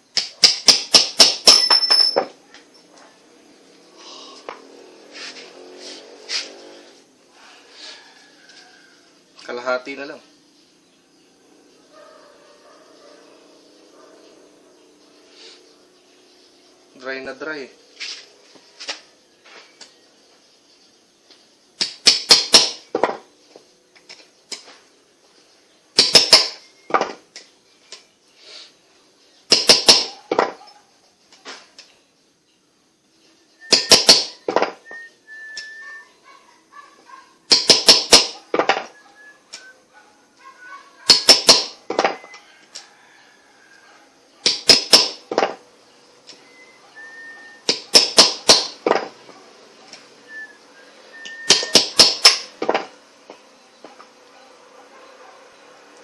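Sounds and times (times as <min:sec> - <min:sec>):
hammer striking metal: 0:00.4 - 0:02.3.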